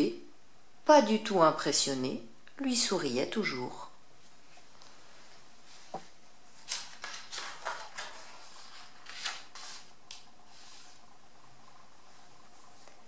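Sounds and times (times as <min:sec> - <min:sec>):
book page turning: 0:06.6 - 0:11.1
paper rustling: 0:06.6 - 0:11.1.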